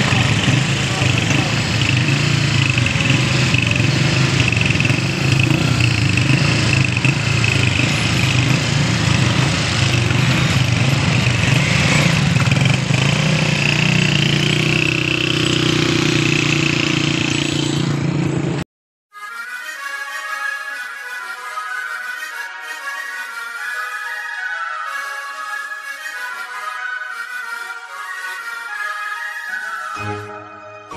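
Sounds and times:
motorcycle engine: 0:00.0 - 0:18.6
tractor engine: 0:00.0 - 0:18.6.

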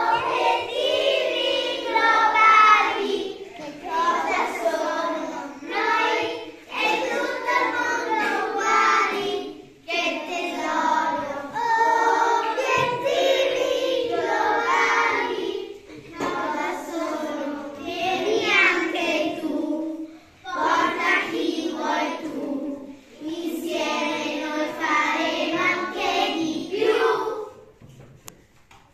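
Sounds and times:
children singing in chorus: 0:00.0 - 0:27.7.

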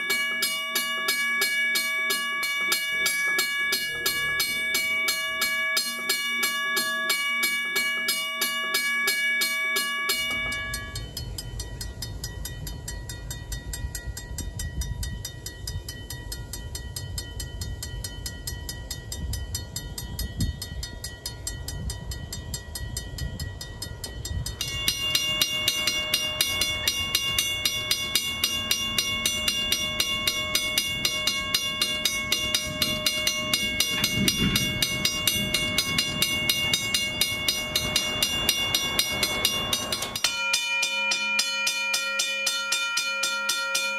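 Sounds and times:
level-crossing bell ringing: 0:00.0 - 0:13.4, 0:24.3 - 0:43.9.

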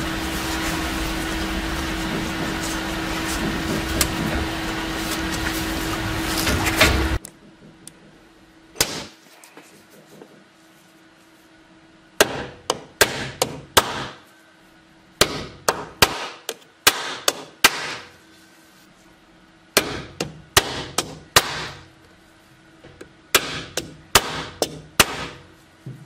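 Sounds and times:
hammer striking steel punch: 0:12.2 - 0:14.2, 0:15.2 - 0:18.1, 0:19.8 - 0:21.8, 0:23.3 - 0:25.4.

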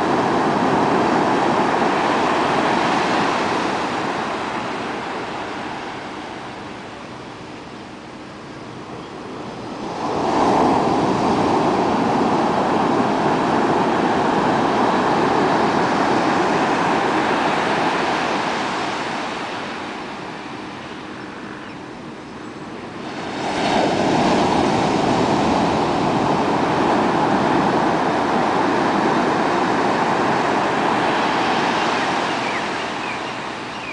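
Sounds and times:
waves crashing on sand: 0:00.0 - 0:33.9.

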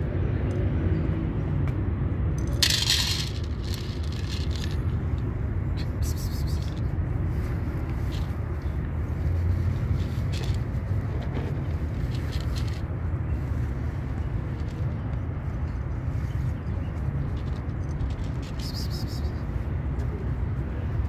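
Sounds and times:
low rumble of city traffic: 0:00.0 - 0:21.0
cat crunching dry kibble: 0:02.6 - 0:05.0.

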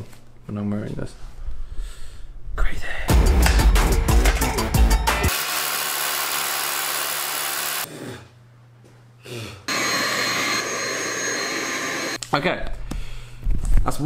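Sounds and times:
power drill into concrete: 0:05.3 - 0:07.9.

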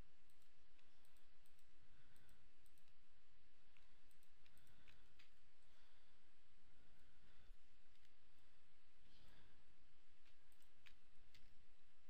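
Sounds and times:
faint steady hiss: 0:00.0 - 0:12.0
computer mouse and keyboard clicks: 0:00.1 - 0:05.6, 0:06.9 - 0:08.5, 0:10.1 - 0:11.9.

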